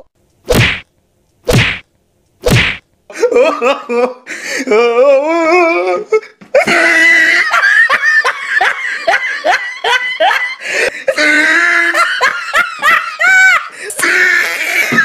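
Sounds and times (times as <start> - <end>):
person laughing hard: 3.1 - 5.0, 6.5 - 15.0.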